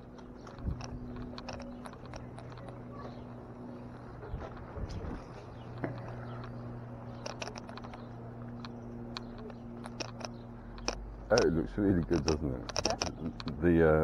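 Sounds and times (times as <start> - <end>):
steady low hum: 0.0 - 14.0
footsteps on stone paving: 0.1 - 6.7.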